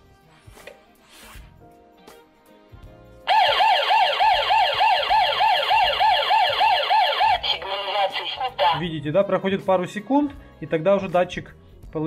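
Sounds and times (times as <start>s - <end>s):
electronic alarm siren wailing: 3.3s - 8.6s.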